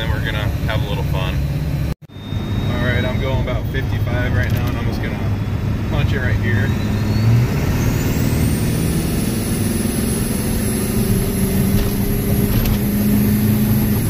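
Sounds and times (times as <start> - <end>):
diesel engine accelerating: 0.0 - 14.0
turbocharger whine: 0.0 - 14.0.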